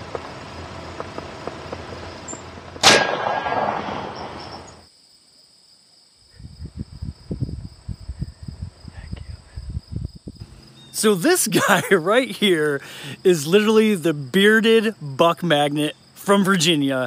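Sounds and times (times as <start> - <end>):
air rifle shot: 1.0 - 4.8.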